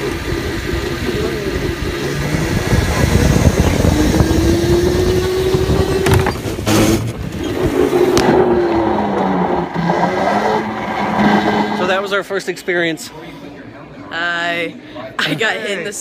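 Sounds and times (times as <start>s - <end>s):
go-kart motor running: 0.0s - 11.9s.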